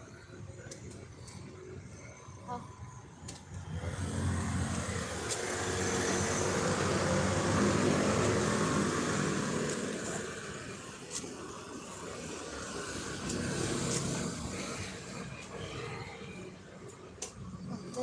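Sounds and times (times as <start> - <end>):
vehicle engine passing: 3.6 - 10.7.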